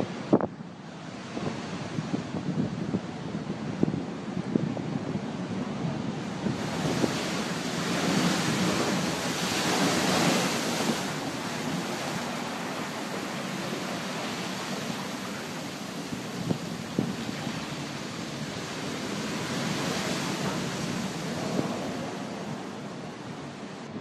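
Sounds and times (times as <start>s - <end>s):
waves crashing over sea wall: 0.0s - 24.0s
wind buffeting microphone: 0.0s - 24.0s.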